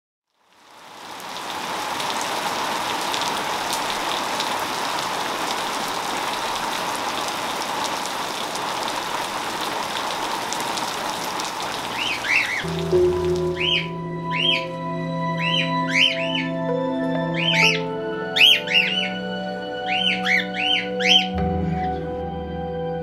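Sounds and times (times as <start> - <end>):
heavy rain falling: 0.3 - 14.8.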